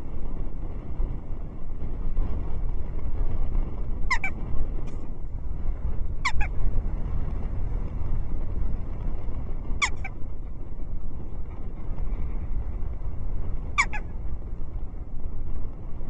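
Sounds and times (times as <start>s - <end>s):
wind on microphone: 0.0s - 16.0s
jackdaw calling: 4.1s - 4.4s, 6.2s - 6.5s, 9.8s - 10.2s, 13.7s - 14.1s.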